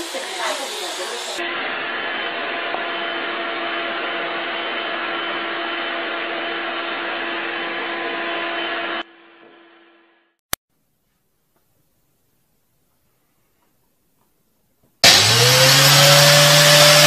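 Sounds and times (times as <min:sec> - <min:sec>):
vacuum cleaner running: 0:00.0 - 0:09.9, 0:15.0 - 0:17.0.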